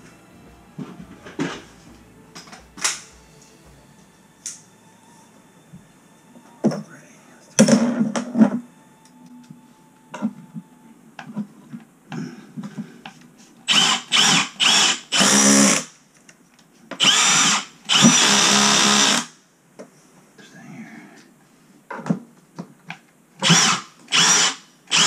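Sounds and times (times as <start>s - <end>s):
cordless drill driving screw: 13.7s - 15.8s, 17.0s - 19.3s, 23.4s - 25.0s.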